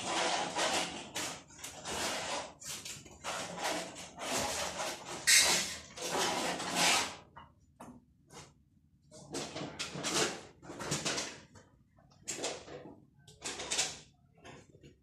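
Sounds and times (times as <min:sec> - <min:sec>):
trowel scraping wet mortar: 0:00.0 - 0:07.3.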